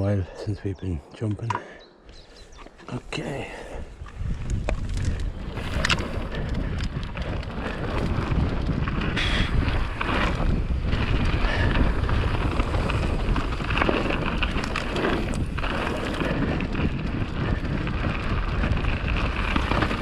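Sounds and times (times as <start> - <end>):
wind buffeting microphone: 1.9 - 20.0
rumble of tyres on dirt: 3.1 - 20.0
bike knocking and rattling: 4.0 - 20.0.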